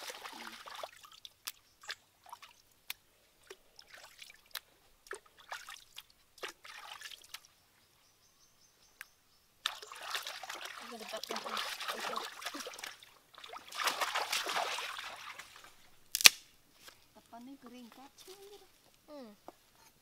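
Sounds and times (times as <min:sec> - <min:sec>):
hands splashing in water: 0:00.0 - 0:07.5, 0:09.6 - 0:16.4
water dripping: 0:00.0 - 0:07.5, 0:09.0 - 0:16.4.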